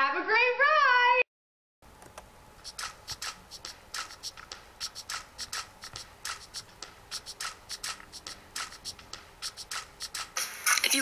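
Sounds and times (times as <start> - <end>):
pen scribbling on paper: 2.6 - 10.4.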